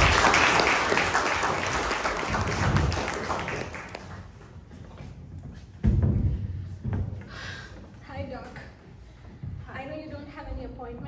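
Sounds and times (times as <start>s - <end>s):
applause: 0.0s - 4.5s.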